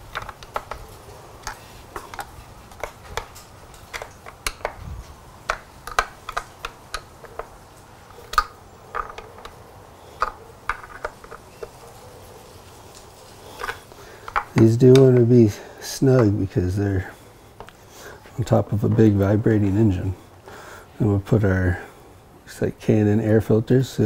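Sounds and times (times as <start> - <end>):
hand tool clicking on screws: 0.0 - 4.8, 5.5 - 9.6.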